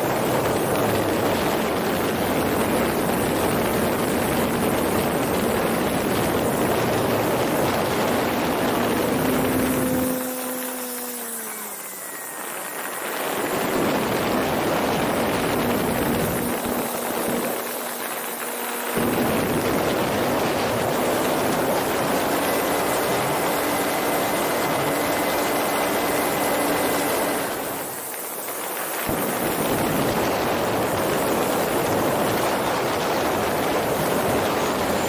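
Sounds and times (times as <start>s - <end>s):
wind rushing past microphone: 0.0s - 10.4s, 12.2s - 28.0s
model plane motor droning: 0.0s - 35.0s.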